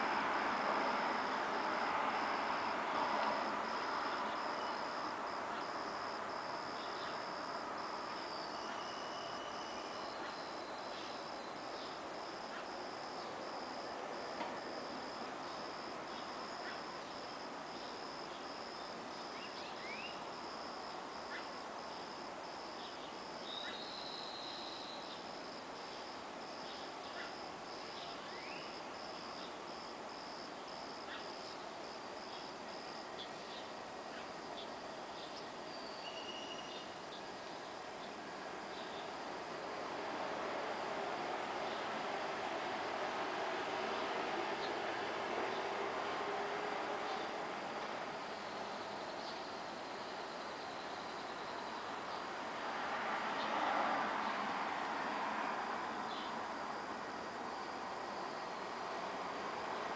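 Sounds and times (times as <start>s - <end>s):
passing traffic rumble: 0.0s - 6.3s, 38.4s - 48.8s, 51.6s - 59.9s
crickets chirping: 0.0s - 59.9s.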